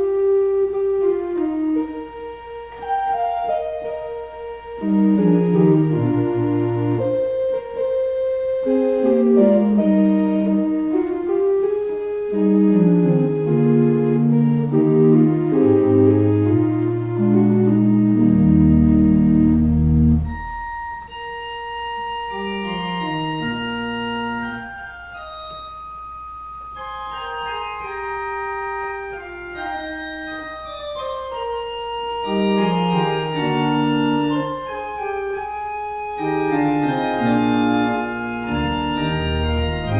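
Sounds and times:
slow organ music: 0.0s - 39.9s.

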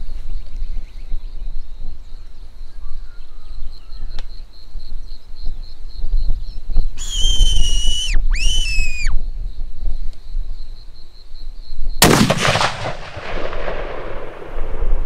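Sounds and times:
fox whistle squealing calls: 7.0s - 9.2s
rifle shot with echo: 12.0s - 15.0s.

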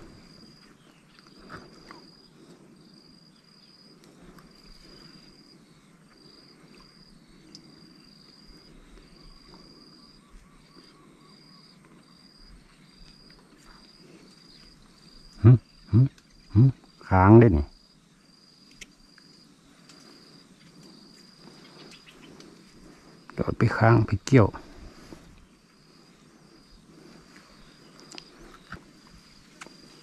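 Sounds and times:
insects chirping in a pulsing trill: 0.0s - 30.0s
man grunting: 15.4s - 16.8s.

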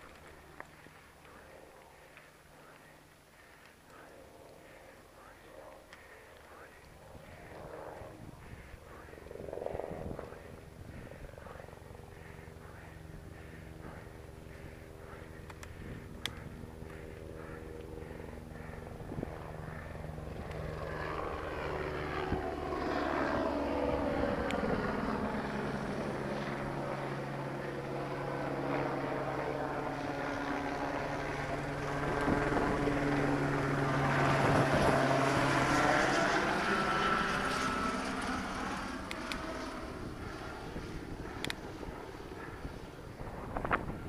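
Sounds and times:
helicopter passing overhead: 0.0s - 44.0s.

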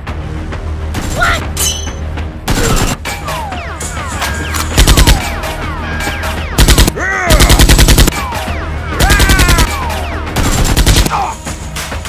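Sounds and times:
automatic gunfire bursts: 6.6s - 8.1s.

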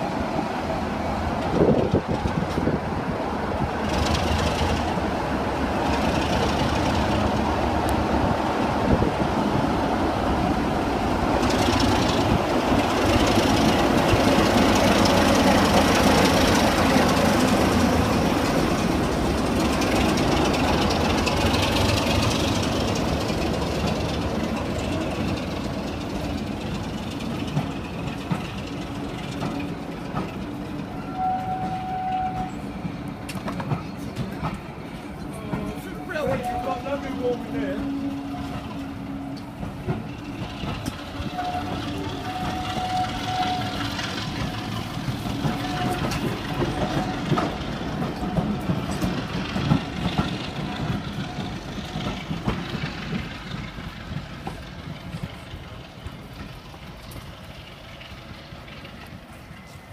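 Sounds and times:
diesel locomotive passing: 0.0s - 59.9s.

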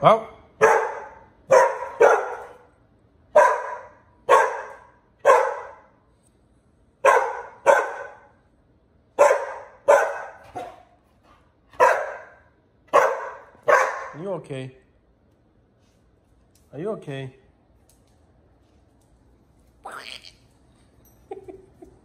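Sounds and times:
dog barking: 0.6s - 2.7s, 3.3s - 6.0s, 7.0s - 8.3s, 9.2s - 11.0s, 11.7s - 14.2s.

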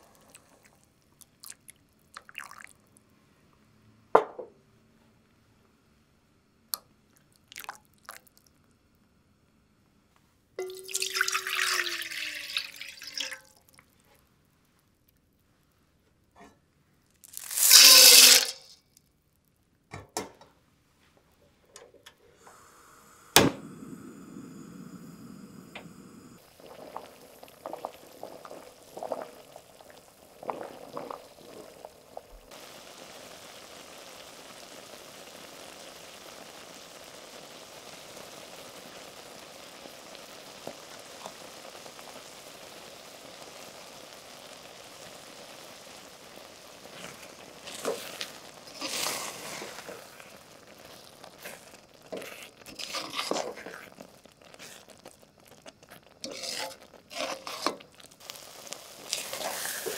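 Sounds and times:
beans boiling in water: 0.0s - 3.0s, 6.8s - 9.1s, 10.6s - 15.4s, 17.0s - 18.8s, 21.8s - 59.9s
pouring into metal saucepan: 2.2s - 2.8s, 10.6s - 13.9s, 17.2s - 18.7s, 44.4s - 59.9s.

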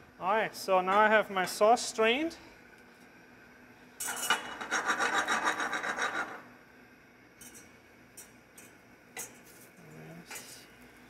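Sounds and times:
whisk scraping metal bowl: 4.6s - 6.4s.

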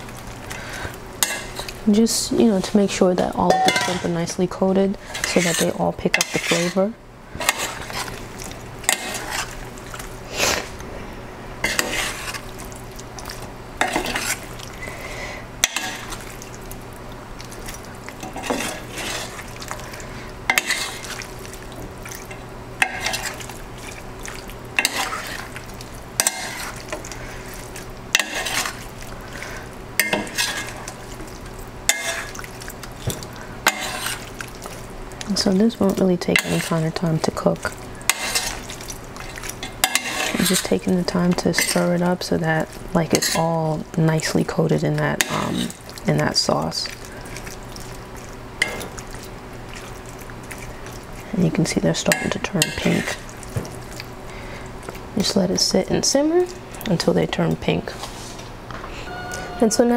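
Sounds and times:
metal spoon scraping a pan: 0.5s - 1.8s, 2.4s - 4.3s, 5.0s - 8.2s, 8.8s - 9.6s, 11.6s - 12.5s, 13.8s - 14.5s, 15.6s - 16.2s, 18.2s - 19.8s, 20.5s - 21.3s, 22.3s - 23.5s, 24.8s - 25.5s, 26.2s - 27.5s, 28.1s - 30.9s, 31.9s - 32.4s, 33.6s - 34.3s, 36.2s - 42.2s, 43.1s - 43.6s, 45.2s - 45.8s, 52.0s - 53.2s.

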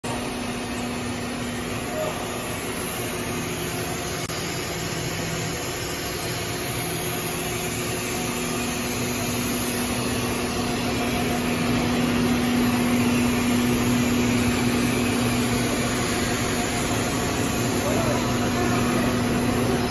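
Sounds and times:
machine humming: 0.0s - 19.9s.

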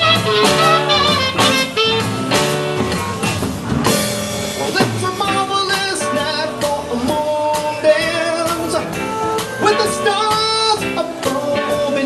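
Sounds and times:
live band playing soft rock: 0.0s - 12.0s
man singing: 4.5s - 12.0s.

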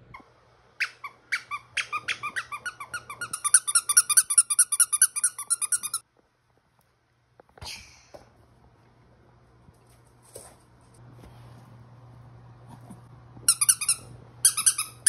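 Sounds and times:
dog toy squeaking: 0.8s - 6.0s, 13.5s - 15.0s.

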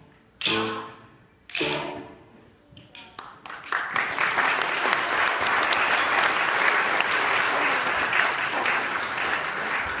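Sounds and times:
audience applauding: 3.2s - 10.0s.

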